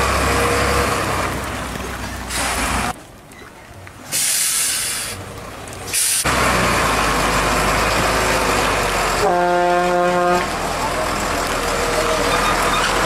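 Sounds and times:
air brakes hissing: 4.1 - 5.2.

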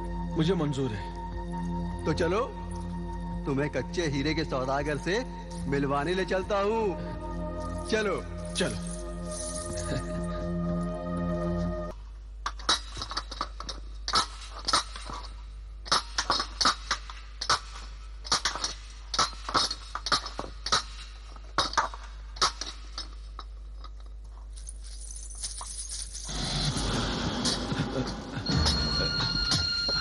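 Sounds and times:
pickaxe and shovel striking stone: 15.9 - 22.9.

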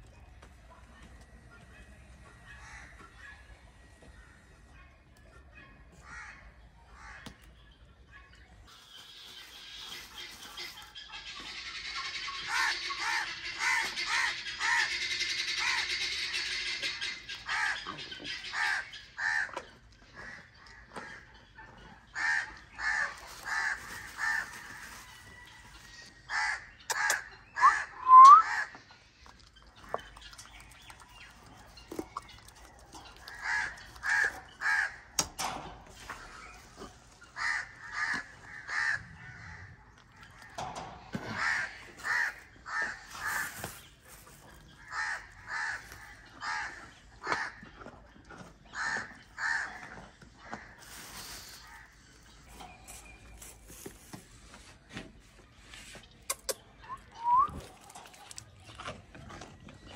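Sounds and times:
crows cawing: 6.0 - 6.4, 22.2 - 25.1, 26.3 - 28.7, 37.4 - 39.8, 41.4 - 43.8, 44.8 - 47.6, 48.8 - 49.8
bird rising whistle: 28.0 - 28.5, 56.9 - 57.6.

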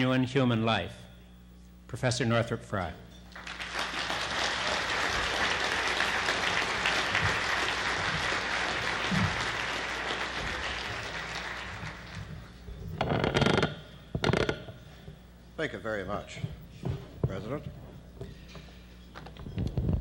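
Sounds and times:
audience applause: 3.4 - 12.6.

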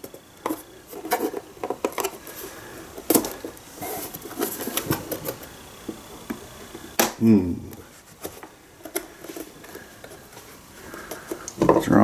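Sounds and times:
plastic case clicking and scraping: 0.4 - 2.2.

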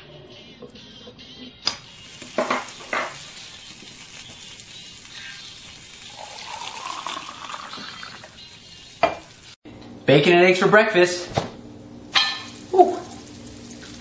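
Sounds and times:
sizzling hiss: 0.4 - 9.6, 11.7 - 14.0
liquid pouring into mug: 6.1 - 8.4.

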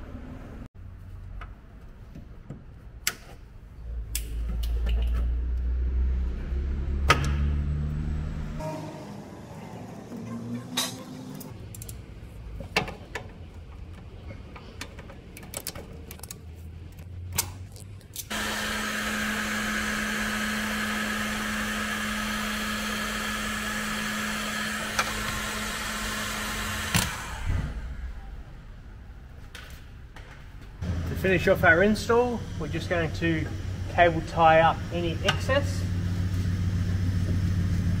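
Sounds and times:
clicks of wires and tools: 4.1 - 5.3, 12.6 - 18.3
heat gun blowing with motor hum: 18.3 - 27.6.

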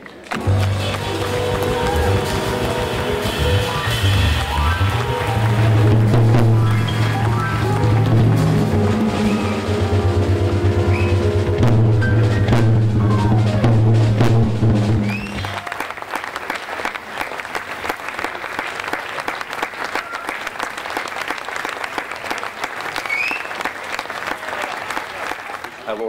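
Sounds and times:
audience applause: 0.0 - 11.6, 15.0 - 26.0
jazz piano trio: 0.3 - 15.7.

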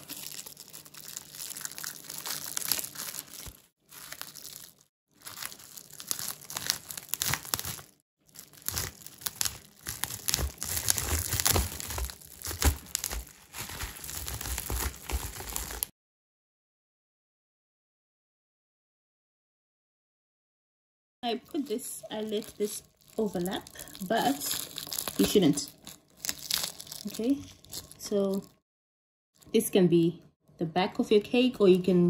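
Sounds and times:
bubble wrap crinkling: 0.0 - 15.9, 21.3 - 28.6.

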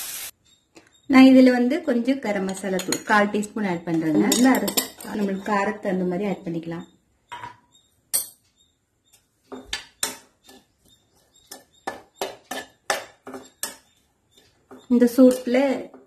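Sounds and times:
spatula clinking and scraping pan: 2.4 - 5.8, 9.5 - 16.0.

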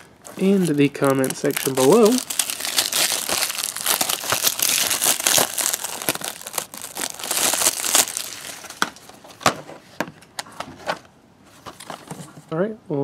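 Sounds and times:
plastic wrap crinkling: 0.0 - 9.6.

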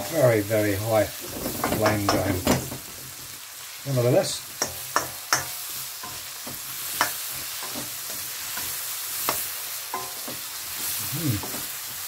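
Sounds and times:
mushrooms sizzling in butter: 0.0 - 12.0
spatula knocking against pan: 4.6 - 8.2.

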